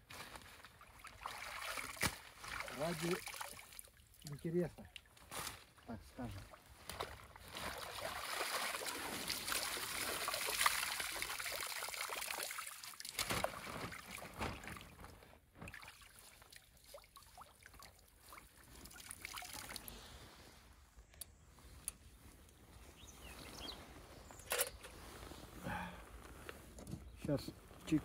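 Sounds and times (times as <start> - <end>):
water pouring and splashing: 0.2 - 20.5
small splashes and drips: 0.6 - 5.6, 6.2 - 20.1.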